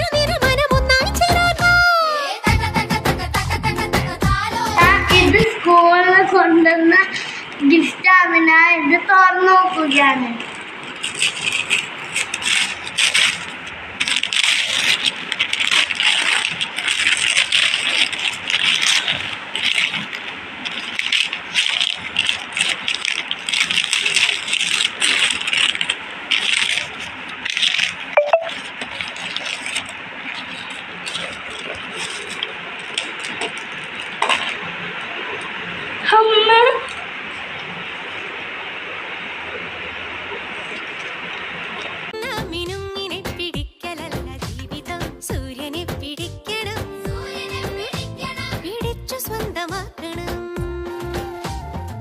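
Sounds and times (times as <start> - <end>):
wrapping paper tearing and crumpling: 10.4 - 35.5.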